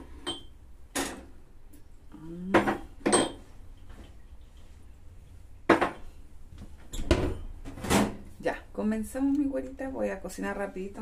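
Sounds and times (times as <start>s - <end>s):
dishes and cutlery clattering: 3.0s - 3.5s.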